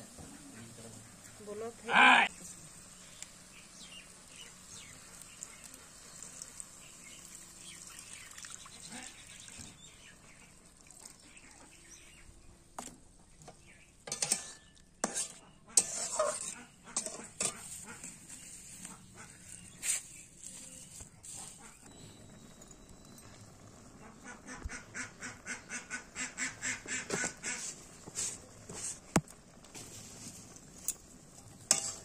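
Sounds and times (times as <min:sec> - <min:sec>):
curry simmering with faint sizzle: 0:00.0 - 0:32.0
metal spatula scraping pan: 0:14.1 - 0:18.6, 0:31.5 - 0:32.0.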